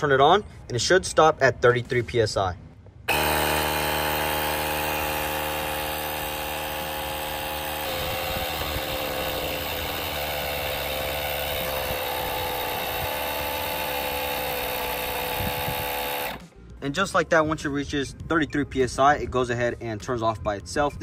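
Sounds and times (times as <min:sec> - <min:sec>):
electric air compressor running: 0:03.1 - 0:16.5.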